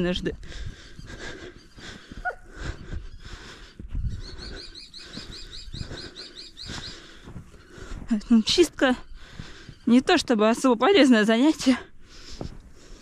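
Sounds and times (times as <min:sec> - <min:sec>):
footsteps crunching in snow: 0:00.0 - 0:13.0
heavy breathing: 0:00.4 - 0:08.1, 0:09.1 - 0:09.9, 0:11.9 - 0:13.0.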